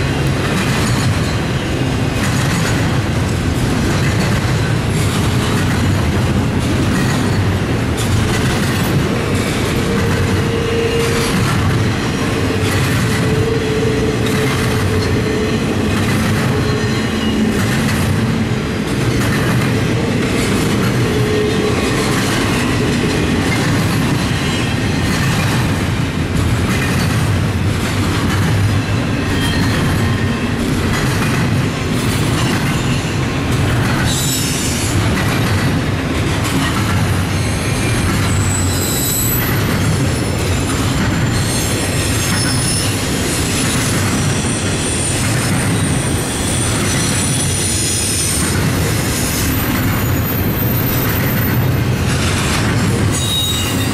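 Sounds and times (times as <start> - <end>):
wheels clicking over rail joints: 0.0 - 38.5
freight train rumbling past: 0.0 - 53.9
high wheel squeal: 9.8 - 17.8, 29.2 - 30.6, 37.2 - 52.1, 53.1 - 53.9.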